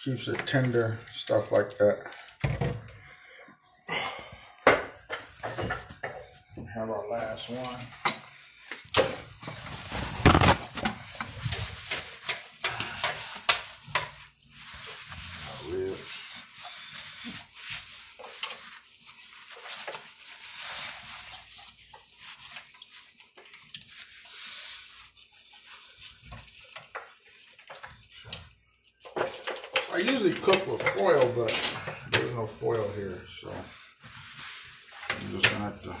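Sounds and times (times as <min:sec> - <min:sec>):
clatter of things being handled: 0:04.7 - 0:06.4, 0:07.4 - 0:16.0, 0:25.8 - 0:33.7.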